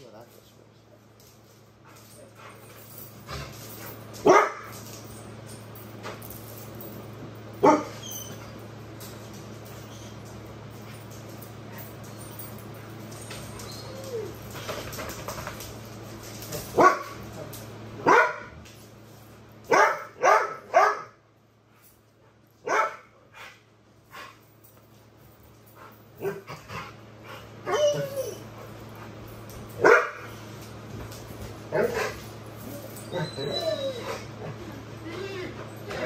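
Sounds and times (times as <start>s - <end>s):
dog barking: 4.2s - 4.7s, 7.6s - 7.9s, 16.8s - 17.1s, 18.0s - 18.6s, 19.7s - 21.2s, 22.6s - 23.1s, 29.8s - 30.2s
dog whining: 7.7s - 8.6s, 13.2s - 14.7s, 27.6s - 28.7s, 31.8s - 36.0s.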